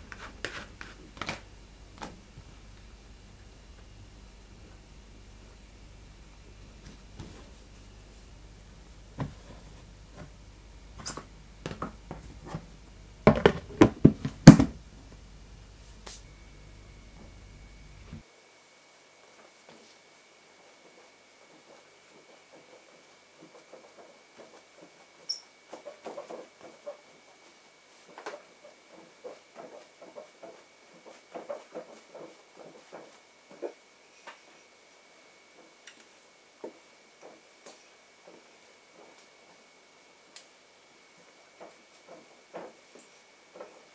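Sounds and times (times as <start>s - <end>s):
hands patting bread dough: 0.0s - 2.4s, 28.0s - 33.8s.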